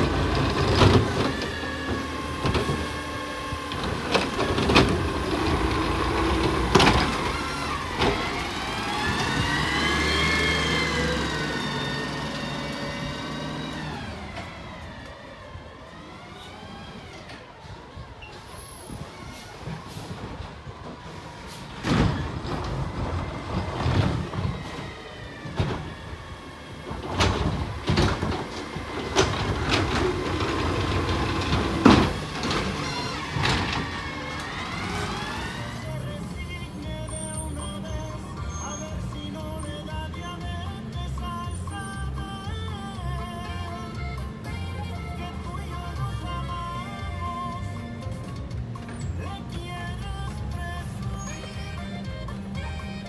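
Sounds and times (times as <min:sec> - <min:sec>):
garbage truck engine whine: 0:00.0 - 0:53.0
loud clunks and thumps: 0:06.4 - 0:07.3, 0:21.8 - 0:24.8, 0:26.9 - 0:34.0.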